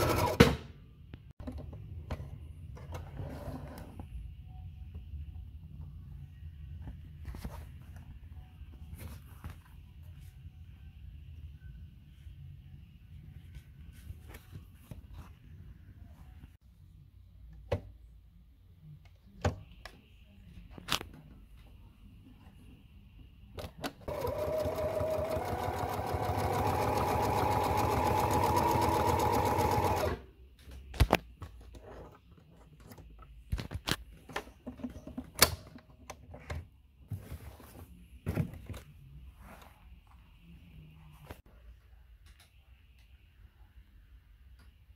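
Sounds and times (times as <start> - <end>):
sewing machine stitching: 0.0 - 0.5, 24.0 - 30.2.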